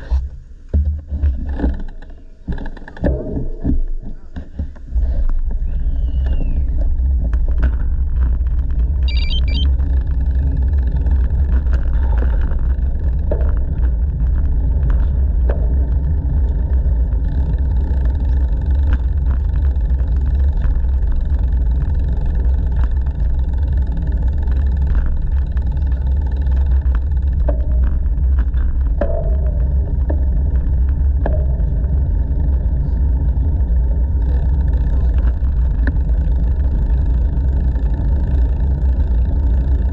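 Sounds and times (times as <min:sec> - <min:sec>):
bicycle tyre noise on pavement: 0:04.6 - 0:39.9
brief high chirp: 0:09.1 - 0:09.6.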